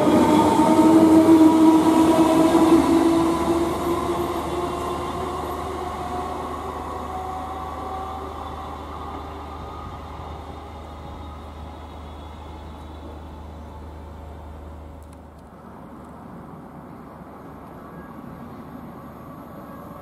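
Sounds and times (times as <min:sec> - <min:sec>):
electric train running: 0:00.0 - 0:15.0.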